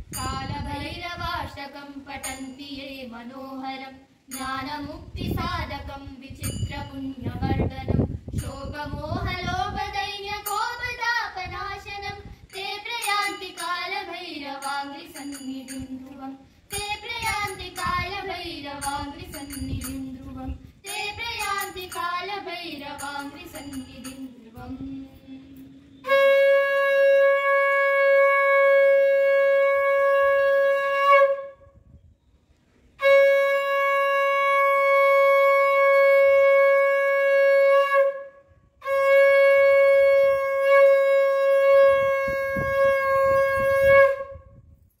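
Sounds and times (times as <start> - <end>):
conch shell blown: 25.5 - 31.9, 32.9 - 44.8.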